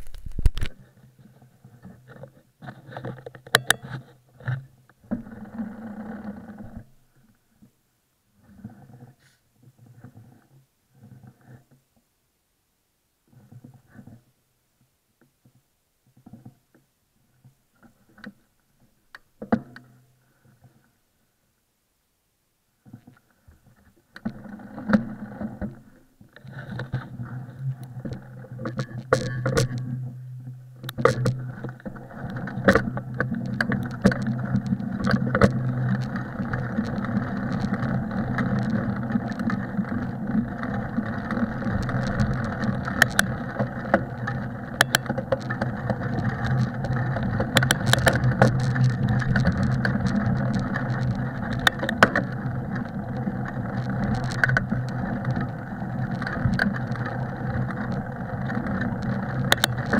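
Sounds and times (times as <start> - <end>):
bike clicks and knocks: 3.1 - 4.0, 28.1 - 29.9, 30.8 - 59.9
tyres rumbling on snow: 31.4 - 59.9.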